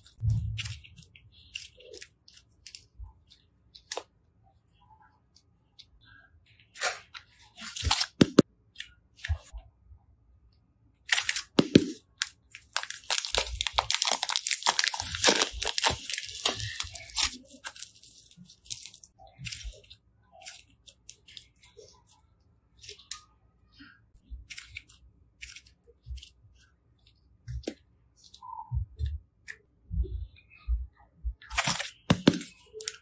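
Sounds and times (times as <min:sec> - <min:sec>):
hands squeezing slime: 0:11.1 - 0:21.5
crisp crinkling crackle: 0:11.1 - 0:22.1.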